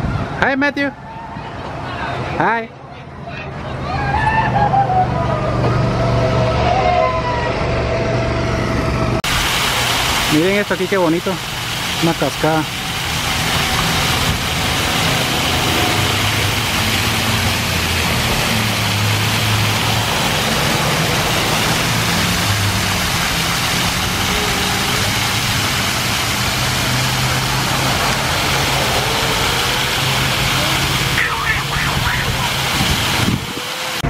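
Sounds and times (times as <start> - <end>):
water splashing into a pool: 9.2 - 34.0.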